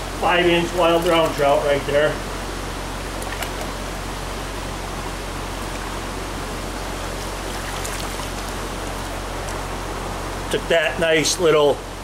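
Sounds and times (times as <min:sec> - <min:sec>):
stream water rushing over rocks: 0:00.0 - 0:12.0.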